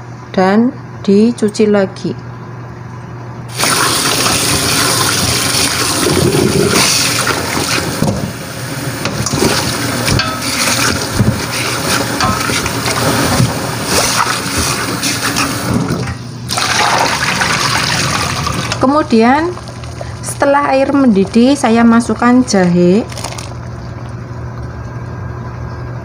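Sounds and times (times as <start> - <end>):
water splashing over meat in a pot: 3.5 - 8.1, 9.2 - 24.2
tap water running into a sink: 3.5 - 8.4, 9.0 - 18.9.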